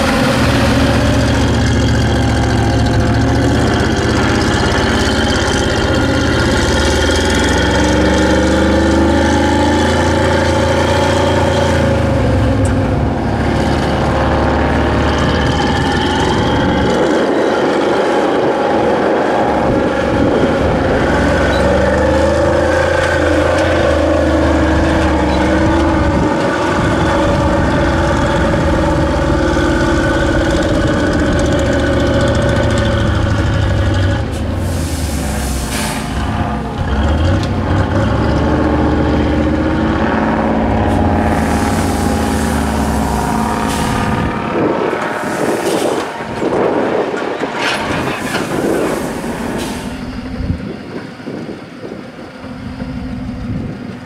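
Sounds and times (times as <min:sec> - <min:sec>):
truck engine under load: 0:00.0 - 0:54.0
air brakes hissing: 0:34.3 - 0:36.3, 0:45.1 - 0:46.1, 0:48.0 - 0:50.4.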